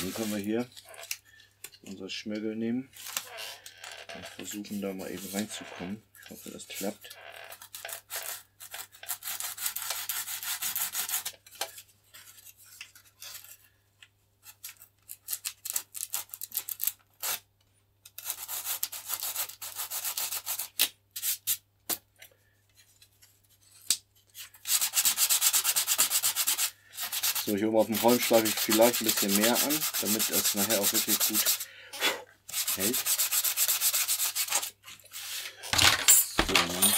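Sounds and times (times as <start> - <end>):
sandpaper sanding wood: 0.0 - 0.5, 9.1 - 11.3, 18.2 - 20.7, 24.7 - 31.6, 32.5 - 35.4.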